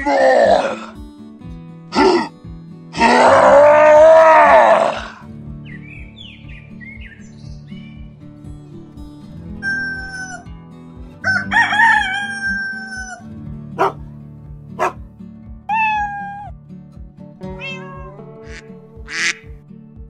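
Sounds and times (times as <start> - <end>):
background music with steady beat: 5.2 - 20.0
rooster crowing: 11.2 - 13.2
cat meowing: 15.7 - 16.5, 17.5 - 19.3.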